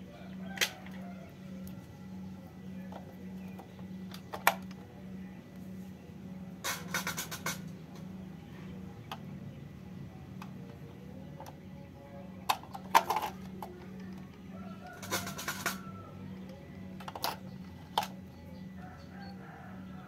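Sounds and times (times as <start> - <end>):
faint background music: 0.0 - 20.0
batteries clicking into plastic toy: 12.4 - 18.2.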